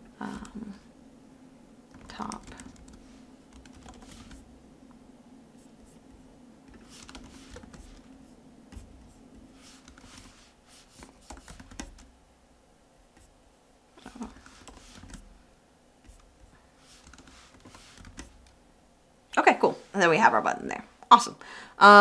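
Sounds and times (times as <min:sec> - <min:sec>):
computer keyboard typing: 0:01.9 - 0:04.5, 0:05.8 - 0:08.1, 0:09.7 - 0:10.4, 0:11.0 - 0:12.1, 0:14.0 - 0:15.4, 0:16.1 - 0:18.6.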